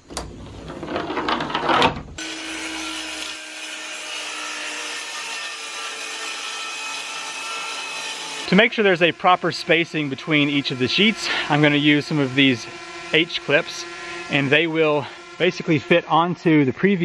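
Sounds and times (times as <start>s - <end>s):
circular saw cutting board: 0.0s - 17.0s
loud clatter and scraping: 0.1s - 2.2s.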